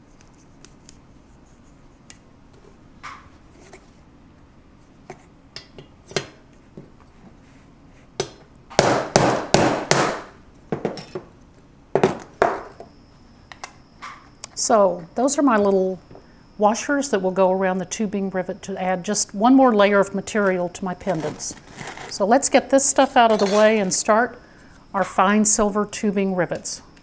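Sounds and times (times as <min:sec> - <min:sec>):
hammer striking steel punch: 0:08.2 - 0:10.3.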